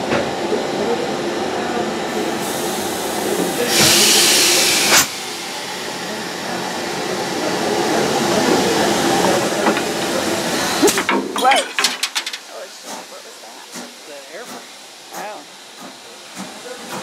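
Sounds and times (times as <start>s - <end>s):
low rumble of train: 0.0s - 11.5s, 12.3s - 17.0s
compressed air hissing out: 2.4s - 5.1s.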